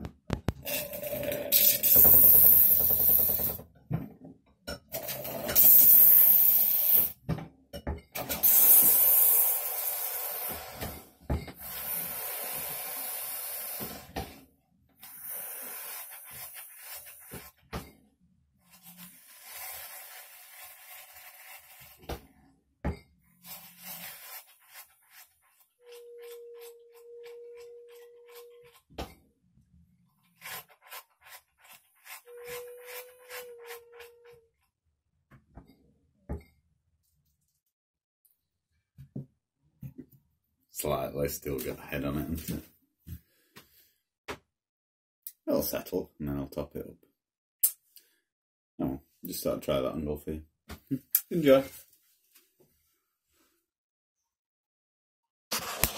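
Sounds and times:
beer hissing into glass: 5.4 - 7.1, 8.3 - 10.9.

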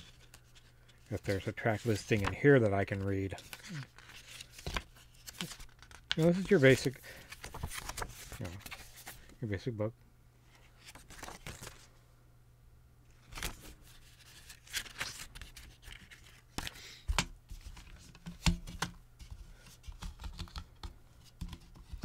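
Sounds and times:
paper pages rustling: 0.0 - 9.4, 10.5 - 11.9, 13.2 - 16.8.

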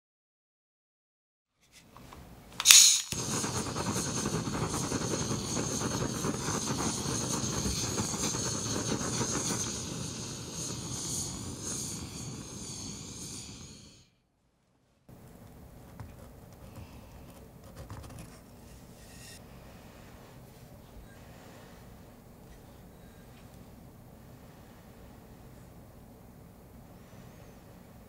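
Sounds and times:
butane torch lighting pop: 2.6 - 14.0
torch flame hissing: 2.6 - 14.1.

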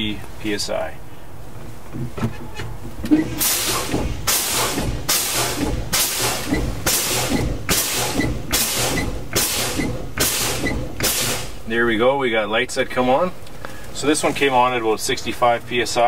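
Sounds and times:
truck air brakes hissing: 3.1 - 11.7.

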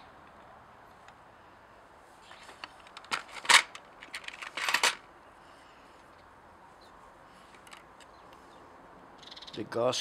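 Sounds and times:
metal engine parts clicking and rattling: 2.4 - 5.0.

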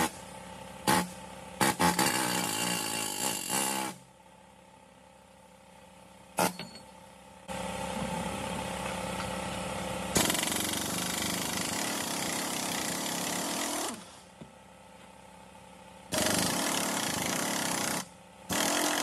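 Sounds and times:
pneumatic impact wrench running: 0.8 - 4.0, 10.1 - 14.2, 16.1 - 19.0
metallic clink: 6.4 - 7.0.

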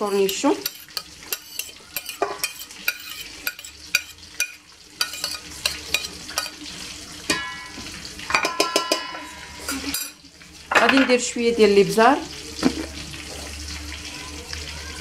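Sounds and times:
metal spoon scraping a plate: 0.0 - 6.6
spoon taps with metallic ringing: 8.4 - 9.2.

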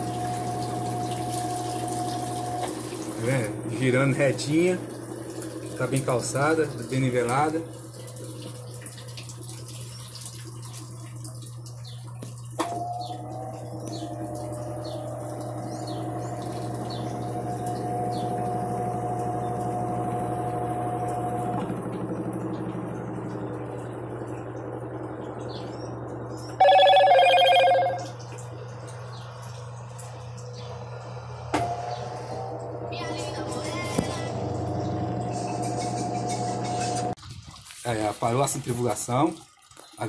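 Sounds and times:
washing machine motor hum: 0.0 - 37.3
loud two-note tone: 26.6 - 28.1.

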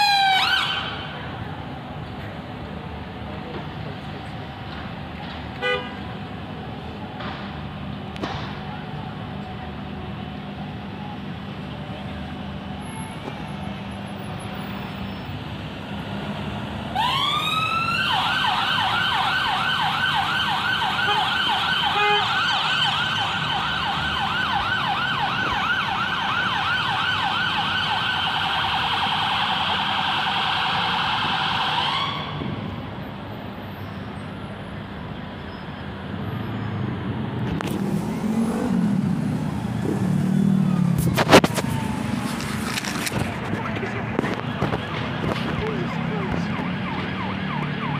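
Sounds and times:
ambulance siren: 0.0 - 1.3, 16.9 - 32.8, 39.2 - 47.9
city traffic: 0.0 - 47.9
low engine rumble: 37.4 - 47.8.

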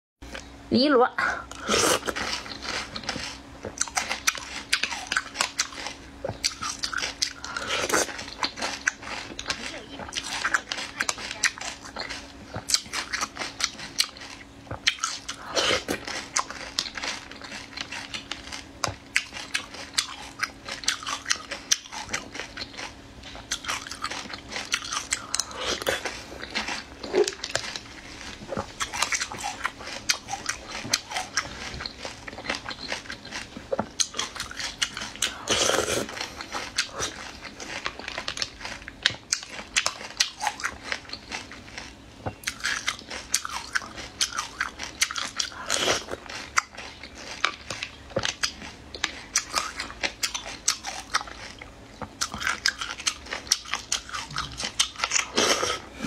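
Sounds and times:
chewing and crunching: 0.2 - 56.0.

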